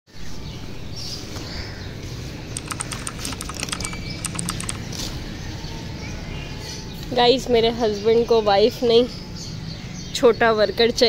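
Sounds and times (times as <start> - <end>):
sharp little clicks and squeaks: 2.5 - 5.2.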